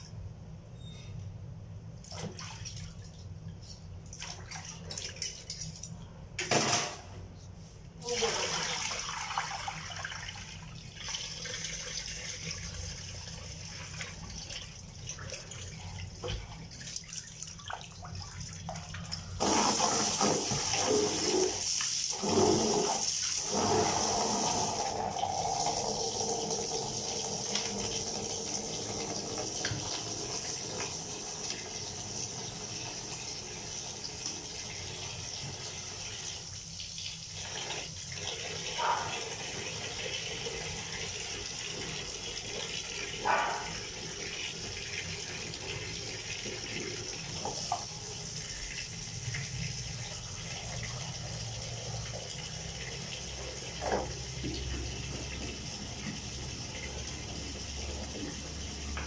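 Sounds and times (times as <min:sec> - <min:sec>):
tap water running: 0:08.0 - 0:59.0
water splashing in basin: 0:13.8 - 0:23.9.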